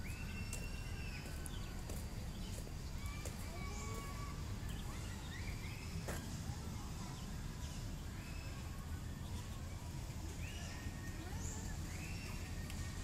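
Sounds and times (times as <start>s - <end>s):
bird chirps and whistled calls: 0.0s - 1.7s, 3.6s - 6.0s, 10.4s - 12.6s
faint click: 12.6s - 12.8s.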